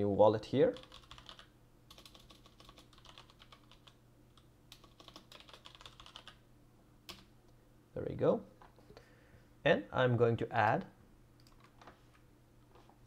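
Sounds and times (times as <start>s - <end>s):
faint keyboard typing: 0.7s - 6.4s, 7.1s - 7.3s, 11.4s - 12.9s.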